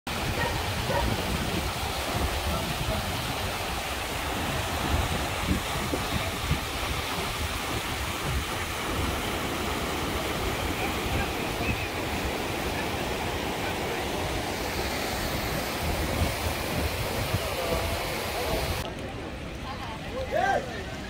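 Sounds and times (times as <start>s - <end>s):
wind buffeting microphone: 0.1s - 12.6s, 15.1s - 18.8s
floodwater rushing: 0.1s - 21.0s.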